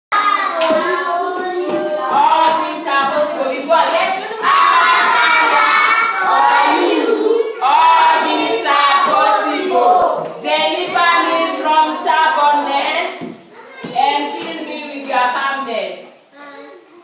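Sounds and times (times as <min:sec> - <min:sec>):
children singing and shouting: 0:00.1 - 0:15.4.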